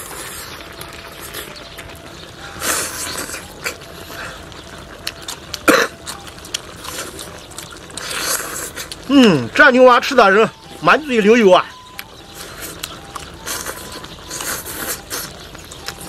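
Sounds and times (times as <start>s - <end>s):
chopsticks and lip clicks: 4.6s - 9.1s, 11.9s - 16.0s
man slurping food: 8.0s - 8.9s.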